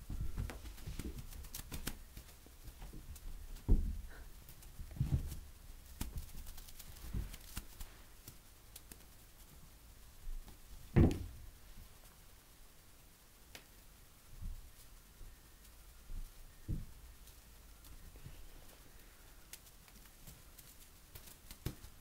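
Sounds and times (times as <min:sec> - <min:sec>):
light rustling: 0:00.0 - 0:12.2
cat thumping on rug: 0:02.8 - 0:04.2, 0:04.8 - 0:05.4, 0:10.9 - 0:11.4, 0:16.7 - 0:17.0.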